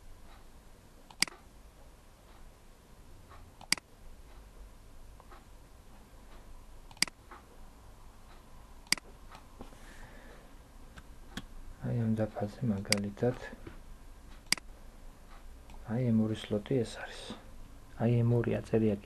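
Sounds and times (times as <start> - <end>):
computer mouse clicks: 1.1 - 1.5, 3.3 - 3.9, 6.3 - 7.4, 8.8 - 9.4, 14.4 - 14.7.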